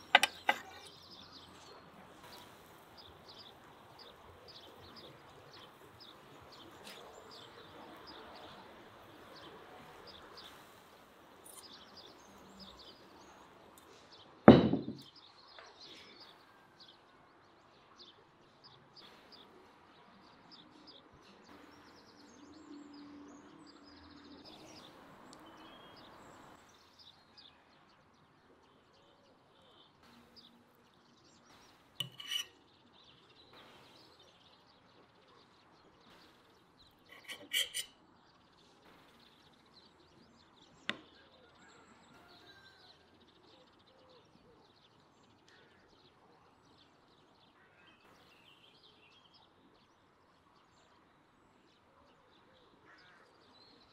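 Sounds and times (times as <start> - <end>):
crockery clinking: 0.0 - 1.0, 14.5 - 15.1, 32.0 - 32.5, 37.1 - 37.9
sharp knock: 14.5 - 15.0
bird chirps: 29.0 - 42.8.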